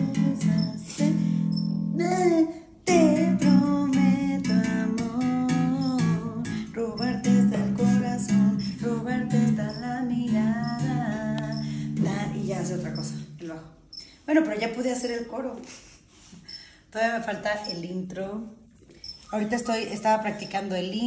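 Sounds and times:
woman singing: 0:00.0 - 0:13.6
electric bass guitar: 0:02.9 - 0:13.3.

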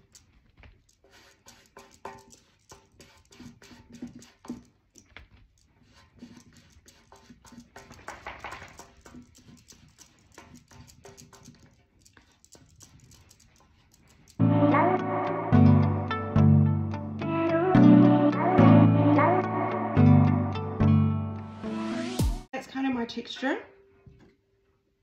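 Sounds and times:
cardboard tapping and scuffing paint: 0:00.4 - 0:11.8.

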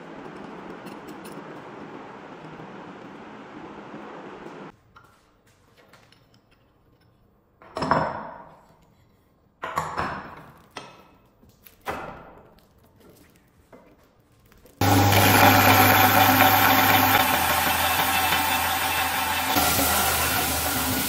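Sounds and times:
belt grinder motor running: 0:14.8 - 0:21.0
wood sanding on belt: 0:14.9 - 0:21.0.

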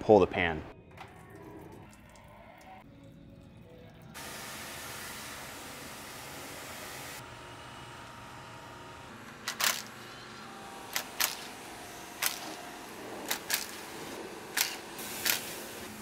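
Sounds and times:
power tool bursts: 0:09.3 - 0:16.0.

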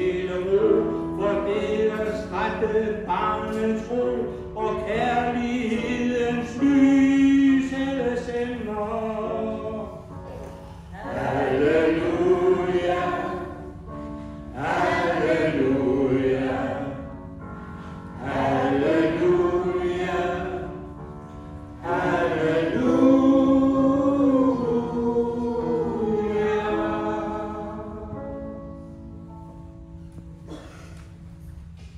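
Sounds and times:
mixed choir singing: 0:10.9 - 0:17.4, 0:18.0 - 0:28.6.

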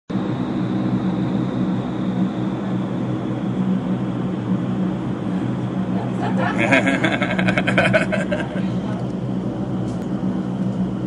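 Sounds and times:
low hum: 0:00.2 - 0:11.0
rush of air from fans: 0:00.2 - 0:11.0.

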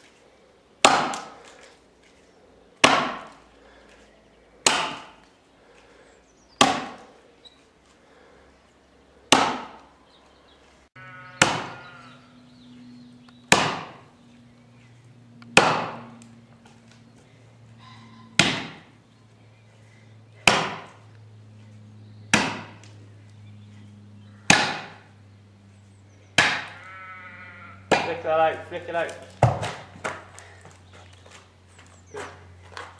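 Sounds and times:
axe chopping log: 0:00.8 - 0:01.5, 0:02.8 - 0:03.4, 0:04.6 - 0:05.2, 0:06.6 - 0:07.1, 0:09.3 - 0:09.9, 0:11.4 - 0:11.8, 0:13.5 - 0:14.0, 0:15.5 - 0:16.0, 0:18.4 - 0:18.9, 0:20.4 - 0:21.0, 0:22.3 - 0:22.9, 0:24.5 - 0:25.0, 0:26.4 - 0:26.8, 0:27.9 - 0:28.3, 0:29.4 - 0:30.2.

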